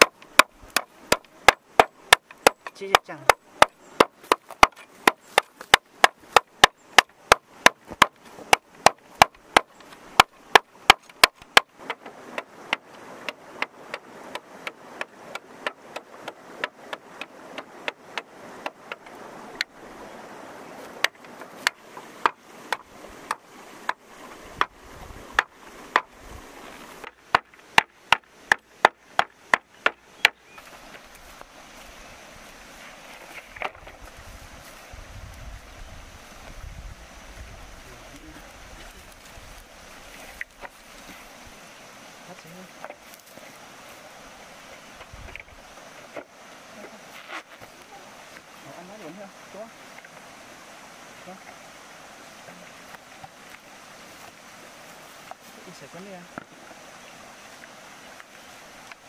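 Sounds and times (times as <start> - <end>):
machete chopping bamboo: 0.0 - 19.1, 27.0 - 30.4.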